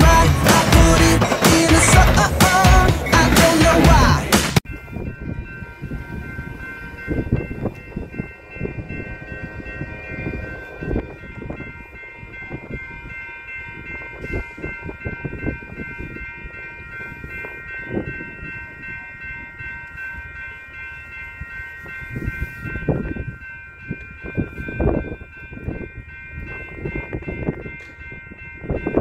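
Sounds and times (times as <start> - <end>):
low rumbles: 0.0 - 16.5
railroad crossing bell ringing: 0.0 - 29.0.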